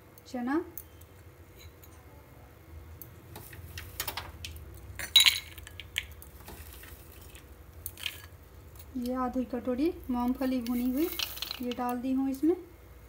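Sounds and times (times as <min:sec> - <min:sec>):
bowls and utensils clinking: 0:10.4 - 0:11.9.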